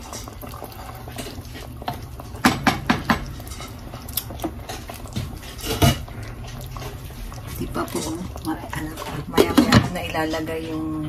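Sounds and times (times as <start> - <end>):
wooden spoon scraping pot: 0.0 - 11.0
spoon knocking against pot: 2.4 - 3.4.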